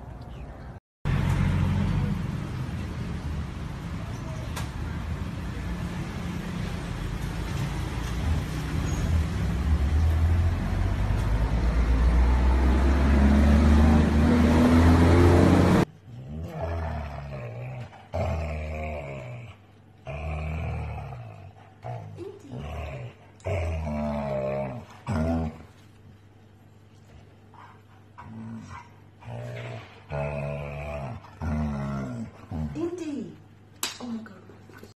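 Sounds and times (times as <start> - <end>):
rumbling traffic noise: 0.0 - 15.9
dogs growling and whining: 15.0 - 25.8, 28.1 - 32.8.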